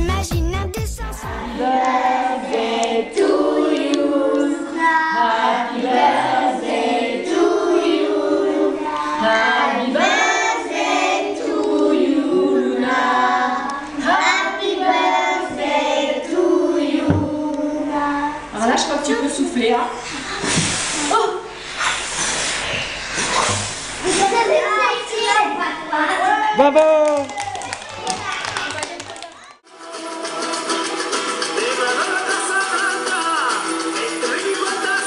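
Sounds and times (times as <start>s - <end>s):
children singing in unison: 1.1s - 18.5s.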